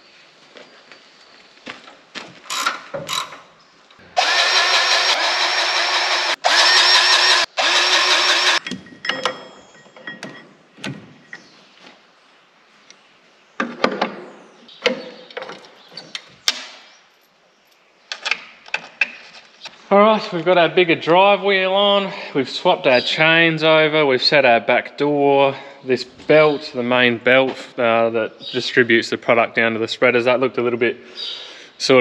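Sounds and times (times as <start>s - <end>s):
power tool running: 4.1s - 8.6s
metallic clanks and clicks: 8.6s - 11.4s.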